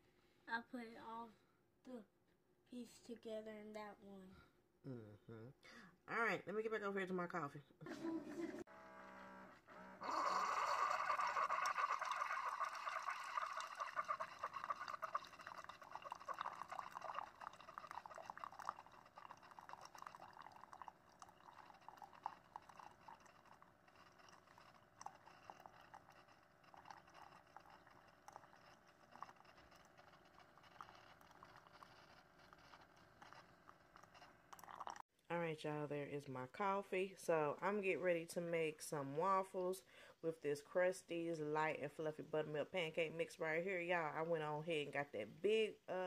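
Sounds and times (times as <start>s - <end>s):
coffee streaming into mug: 10.0s - 35.0s.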